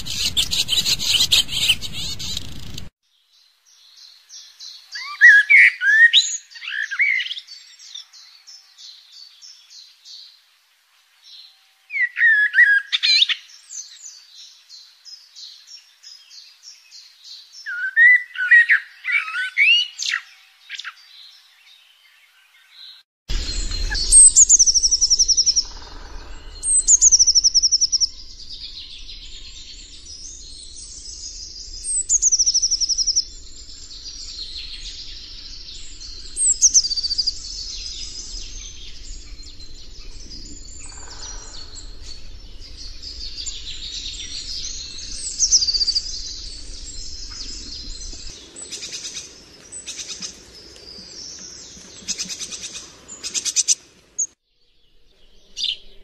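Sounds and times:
songbird trilling phrase: 0.0 - 2.8, 23.5 - 49.0
birds chirping: 0.0 - 2.9, 22.7 - 56.0
low steady rumble: 0.0 - 2.9, 23.3 - 48.4.

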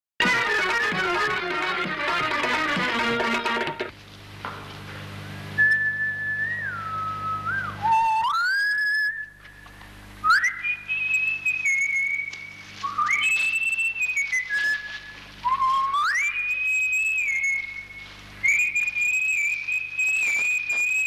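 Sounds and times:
steady low hum: 0.2 - 21.0
person whistling a tune: 5.6 - 9.5, 10.2 - 21.0.

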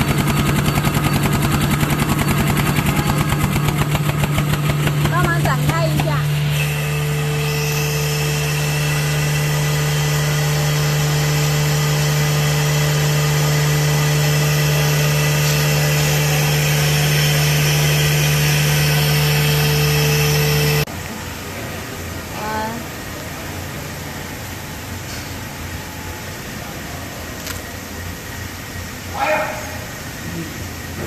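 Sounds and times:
paper towel machine humming: 0.0 - 20.9.

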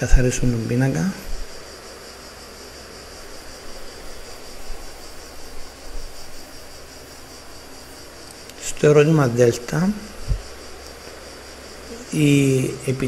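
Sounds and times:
recording hiss: 0.0 - 13.0.

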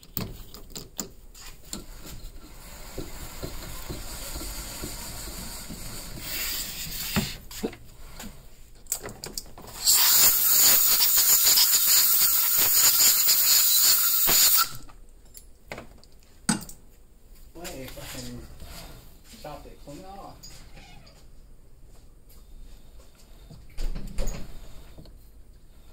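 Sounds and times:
loud steady hiss of tool: 9.8 - 14.8.

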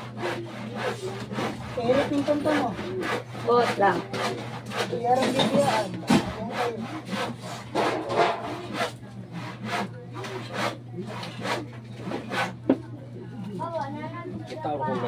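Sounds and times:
hand saw cutting wood: 0.0 - 12.7.

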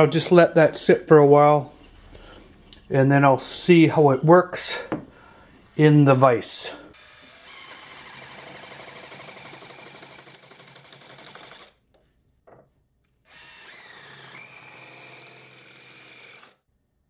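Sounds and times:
power drill whine: 6.9 - 11.8, 13.3 - 16.6.

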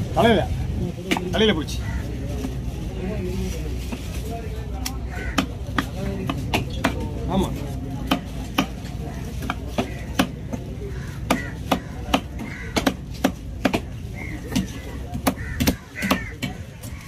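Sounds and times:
knife chopping on wooden block: 11.2 - 13.9.

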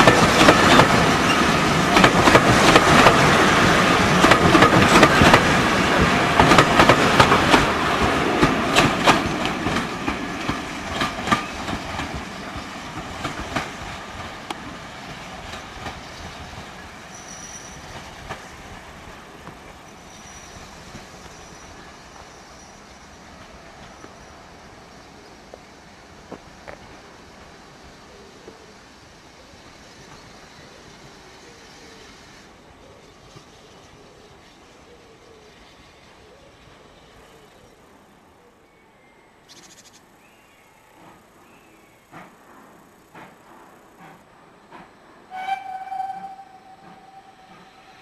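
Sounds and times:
train wheels clicking over rail joints: 0.0 - 21.8, 40.9 - 45.4
train rumble: 0.0 - 38.3, 40.7 - 48.0
wheel squeal: 17.1 - 18.1, 19.9 - 23.3, 45.3 - 48.0.

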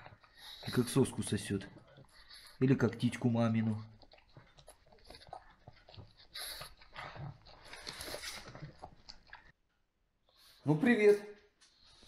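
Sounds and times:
puppy chewing a toy: 0.0 - 9.6.

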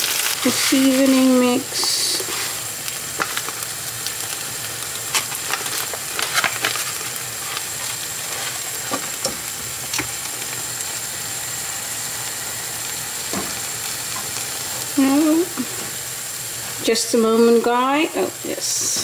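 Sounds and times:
wooden spoon stirring a pan: 0.0 - 3.6
food sizzling in a frying pan: 0.0 - 19.0.

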